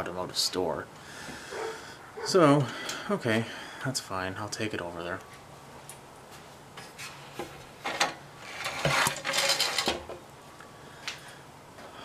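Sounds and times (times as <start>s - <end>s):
metal tools clinking and knocking: 7.9s - 10.1s.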